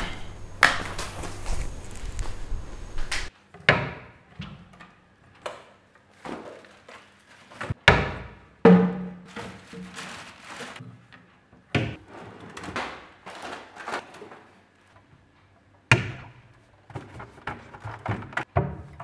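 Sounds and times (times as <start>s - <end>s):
small items rustling and clattering: 0.0s - 3.1s, 6.0s - 7.8s, 9.2s - 15.4s, 16.6s - 18.5s.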